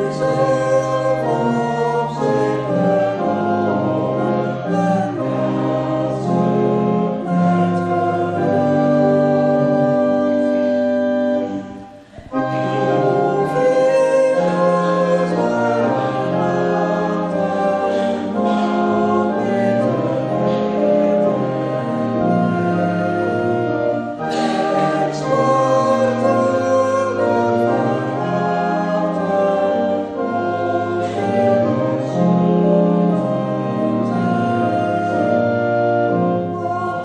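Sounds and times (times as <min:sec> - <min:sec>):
congregation singing a hymn: 0:00.0 - 0:37.0
organ chords: 0:00.0 - 0:37.0.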